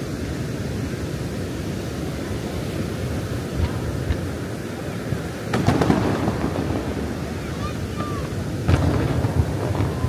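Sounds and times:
surf rumbling: 0:00.0 - 0:10.0
wind on microphone: 0:00.0 - 0:10.0
firework thuds: 0:05.5 - 0:10.0
crowd murmuring: 0:06.1 - 0:10.0.

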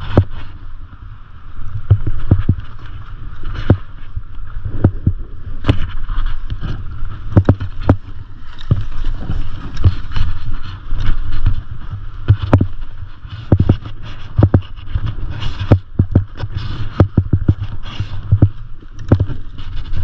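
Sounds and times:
skis scraping over packed snow: 0:00.0 - 0:20.0
wind buffeting microphone: 0:00.0 - 0:20.0
sharp knocks and clatters: 0:06.6 - 0:10.3, 0:12.3 - 0:12.8, 0:13.4 - 0:19.8.

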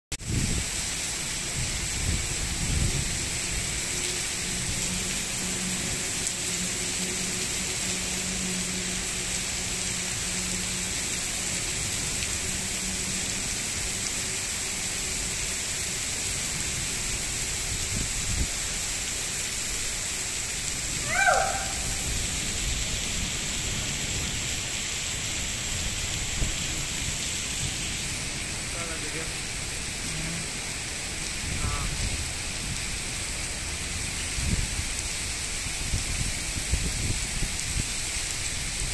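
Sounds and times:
heavy rain on pavement: 0:00.1 - 0:38.9
call falling in pitch: 0:21.0 - 0:22.0.

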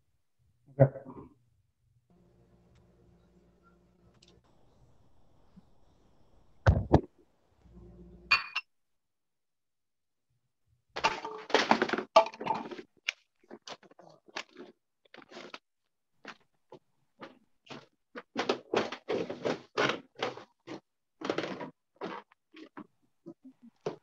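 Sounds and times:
microphone handling thump: 0:06.7 - 0:07.1.

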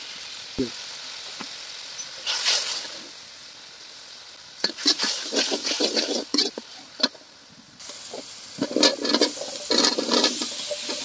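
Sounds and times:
paste sizzling in oil: 0:00.0 - 0:11.0
metal spatula scraping pan: 0:04.6 - 0:07.2, 0:08.6 - 0:11.0.

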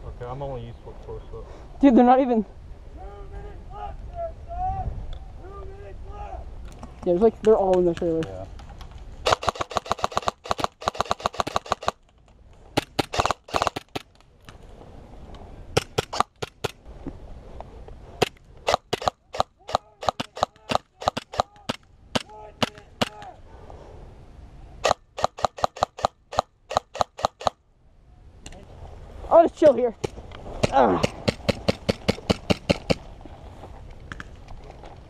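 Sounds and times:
airsoft rifle firing bursts: 0:09.2 - 0:12.0, 0:12.8 - 0:14.1, 0:18.7 - 0:21.8, 0:24.8 - 0:27.6.

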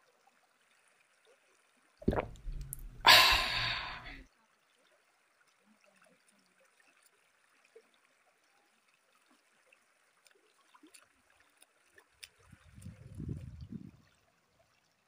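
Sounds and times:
river water trickling over rocks: 0:00.0 - 0:15.0
small splashes: 0:02.0 - 0:04.2.

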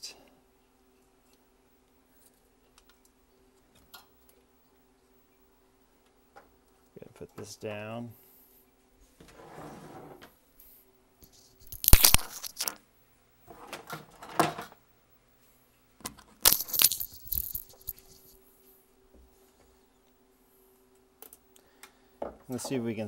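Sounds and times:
plastic and metal parts clattering: 0:16.4 - 0:18.2.

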